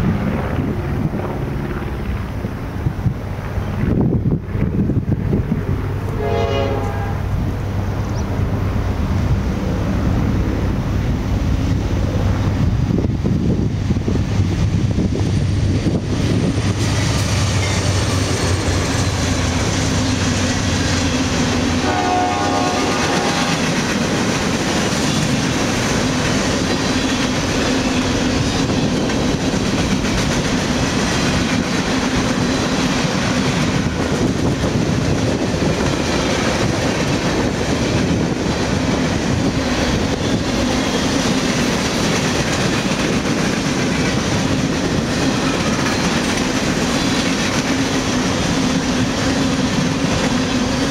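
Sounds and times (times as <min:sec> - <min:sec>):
diesel locomotive engine drone: 0:00.0 - 0:50.9
train horn blast: 0:06.0 - 0:07.4, 0:21.6 - 0:23.9
train wheels clattering on rails: 0:12.6 - 0:50.9.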